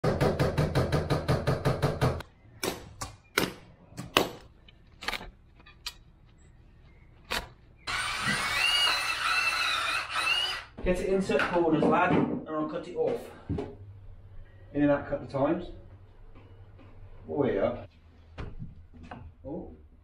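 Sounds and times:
cordless drill whining: 7.9s - 10.8s.

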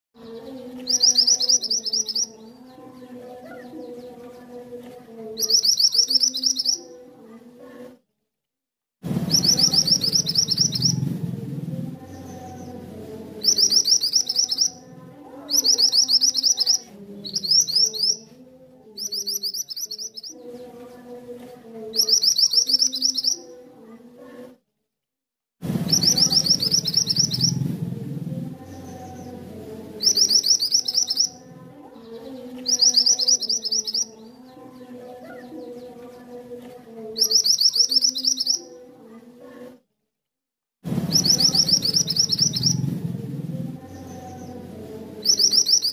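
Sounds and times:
bird rapid high chirps: 0.3s - 2.5s, 5.4s - 6.9s, 9.2s - 11.1s, 13.4s - 14.9s, 15.5s - 18.3s, 19.0s - 20.4s, 21.9s - 23.5s, 25.7s - 27.7s, 30.0s - 31.5s, 32.2s - 34.3s, 37.2s - 38.8s, 41.0s - 43.0s, 45.2s - 45.9s.

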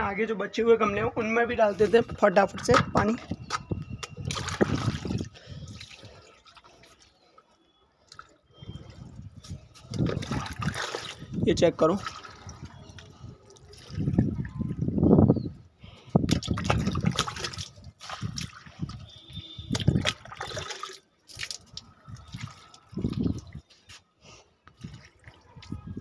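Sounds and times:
water poured onto soil: 9.9s - 14.8s, 16.3s - 19.0s, 19.7s - 23.8s.

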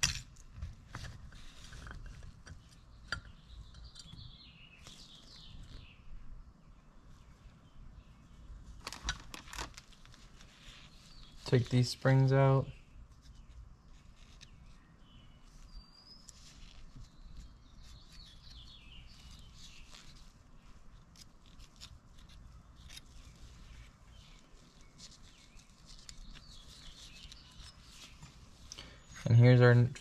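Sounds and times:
small metallic clicks and scrapes: 0.0s - 4.2s.

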